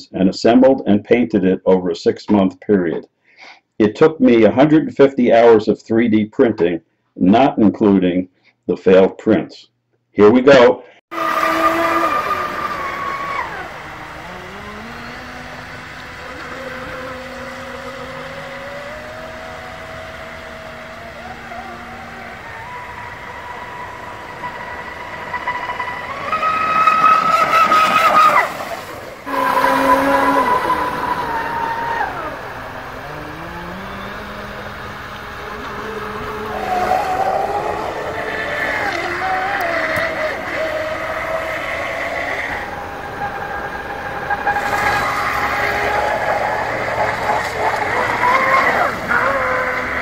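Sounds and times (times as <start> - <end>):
electric motor whining: 11.1 - 50.0
water hissing: 11.1 - 50.0.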